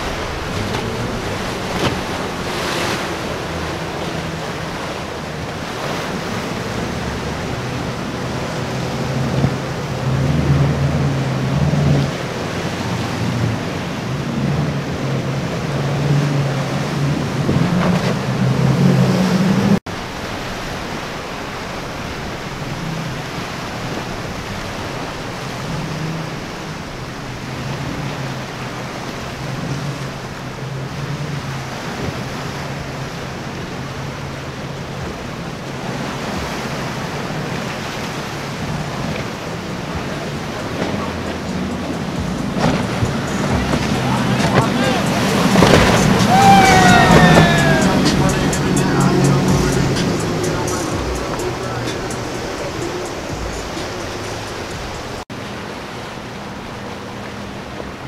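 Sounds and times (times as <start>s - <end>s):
wind on microphone: 0.0s - 19.8s, 31.5s - 55.2s
boat engines droning: 0.0s - 58.0s
surf rushing: 0.0s - 58.0s.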